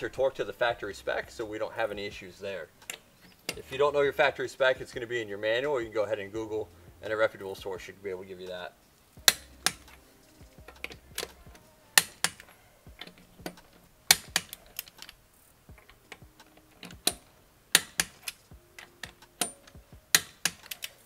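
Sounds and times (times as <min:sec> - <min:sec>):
torque wrench clicking: 0:15.8 - 0:18.4, 0:19.0 - 0:21.0.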